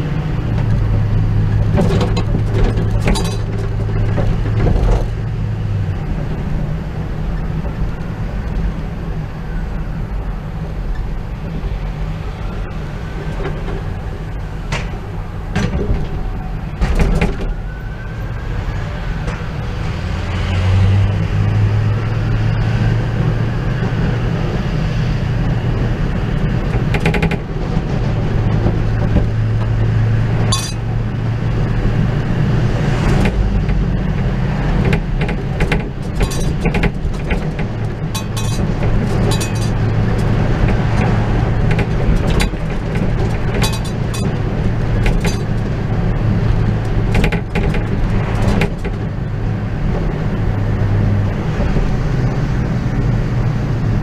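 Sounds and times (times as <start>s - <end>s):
truck engine and road drone: 0.0s - 54.0s
metallic clinks and rattles: 30.5s - 30.9s, 35.7s - 37.4s, 38.1s - 40.3s, 41.7s - 44.4s.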